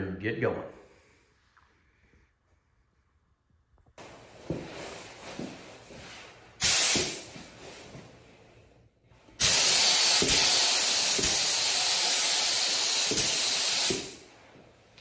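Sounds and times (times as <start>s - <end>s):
spray gun hissing: 6.6s - 7.3s, 9.4s - 14.3s.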